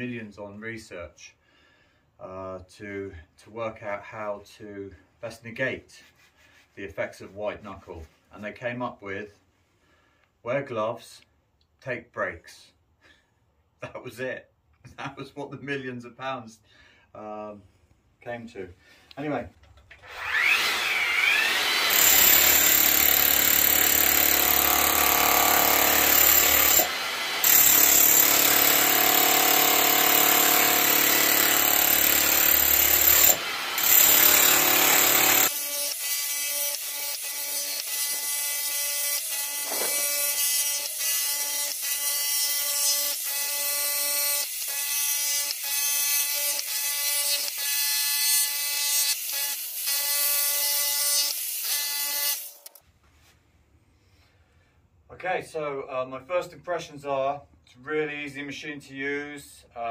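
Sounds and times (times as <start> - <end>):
breaker hammering into floor: 39.6 - 40.1.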